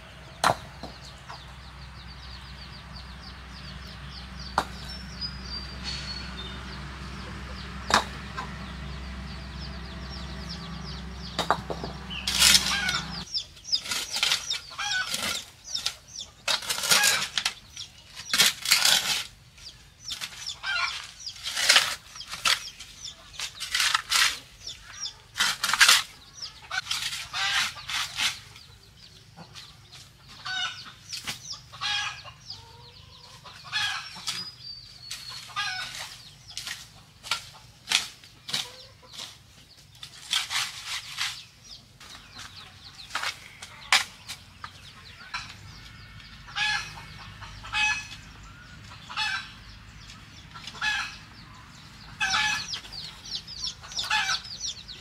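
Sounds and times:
sharp knocks: 0:00.4 - 0:01.4, 0:04.5 - 0:04.9, 0:07.8 - 0:08.5, 0:11.2 - 0:13.2
shovel scraping wet soil on concrete: 0:11.3 - 0:28.8, 0:33.6 - 0:45.7.

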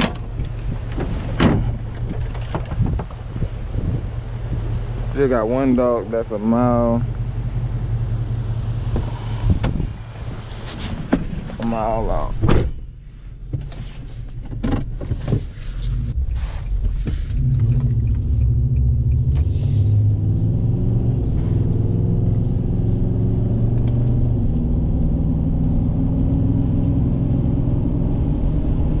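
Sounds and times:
knocks and rattles: 0:00.0 - 0:03.6
truck engine running: 0:00.0 - 0:11.7
road noise: 0:00.0 - 0:29.0.

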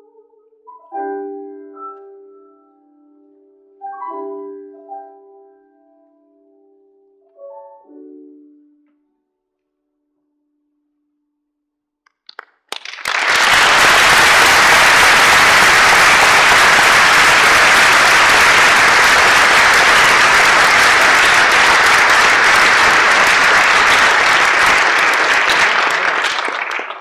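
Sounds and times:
audience applause: 0:12.3 - 0:27.0.

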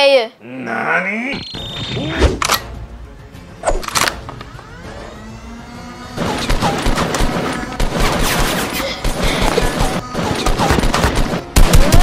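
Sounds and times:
background music: 0:01.1 - 0:12.0
rapid gunfire: 0:06.2 - 0:12.0.

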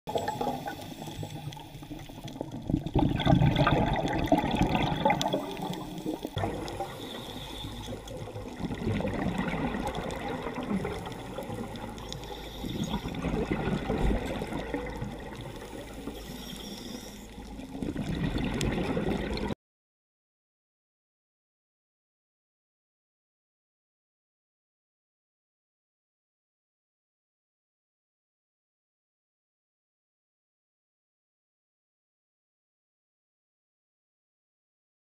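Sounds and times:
underwater bubbling and rushing: 0:00.1 - 0:19.6.

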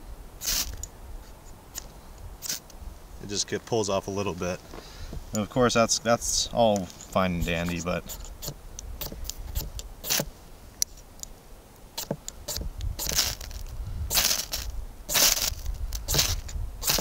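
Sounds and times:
striker scraping ferrocerium rod: 0:06.8 - 0:10.3, 0:12.0 - 0:17.0.

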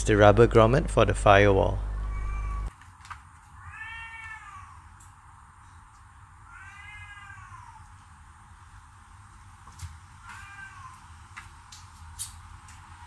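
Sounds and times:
cat meowing: 0:02.0 - 0:02.7, 0:03.6 - 0:04.8, 0:06.5 - 0:07.9, 0:10.2 - 0:11.0.

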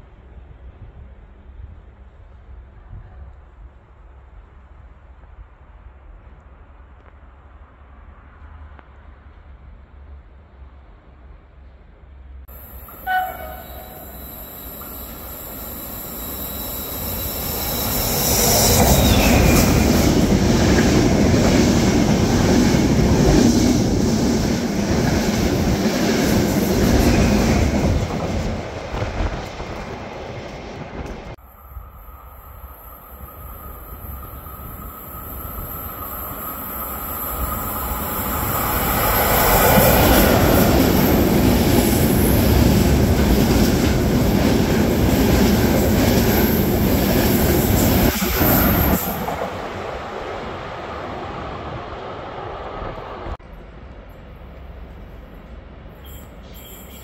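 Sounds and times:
train passing: 0:00.0 - 0:57.0
train wheels on rails: 0:12.4 - 0:57.0.

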